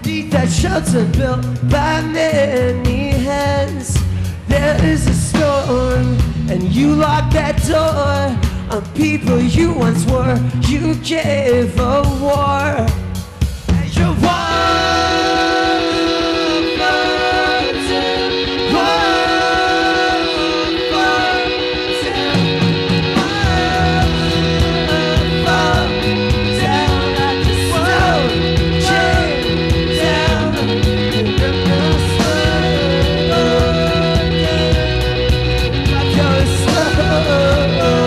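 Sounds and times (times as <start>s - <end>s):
bass guitar: 0.0s - 38.0s
drums: 0.0s - 38.0s
electric guitar: 12.7s - 38.0s
melodic lead line: 13.2s - 38.0s.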